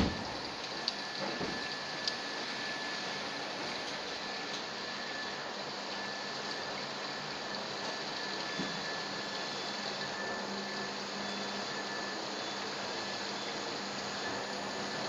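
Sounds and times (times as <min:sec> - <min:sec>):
faint steady whine: 0:00.0 - 0:15.0.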